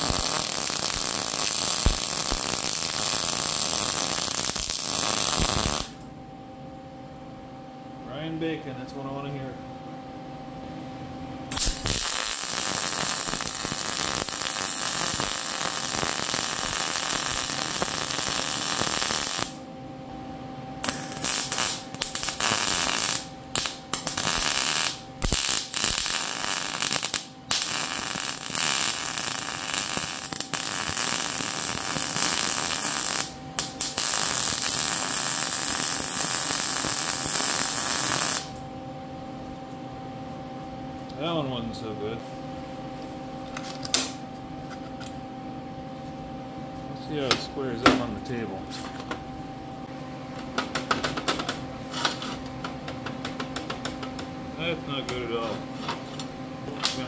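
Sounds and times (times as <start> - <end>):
welding arc crackling and sizzling: 0.0 - 6.0, 11.5 - 19.6, 20.8 - 38.6.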